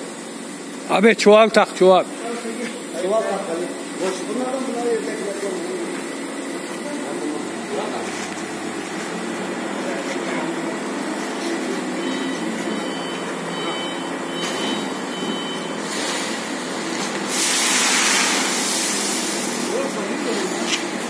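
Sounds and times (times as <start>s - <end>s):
bagging machine humming: 0.0s - 21.0s
loud hiss: 15.8s - 20.7s.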